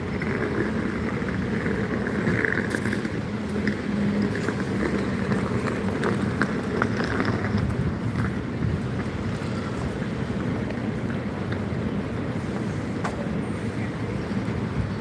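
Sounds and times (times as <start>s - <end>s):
city street traffic: 0.0s - 15.0s
wind buffeting microphone: 0.0s - 15.0s.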